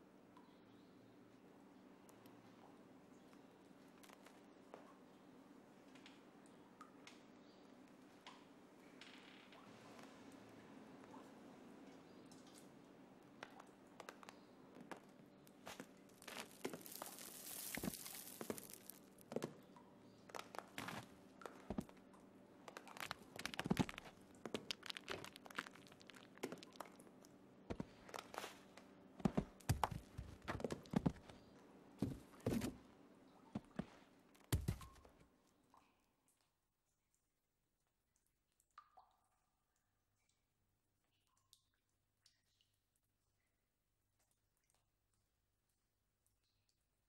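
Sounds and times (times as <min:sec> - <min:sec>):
small knocks and crackles: 0:13.4 - 0:32.8, 0:33.6 - 0:35.2.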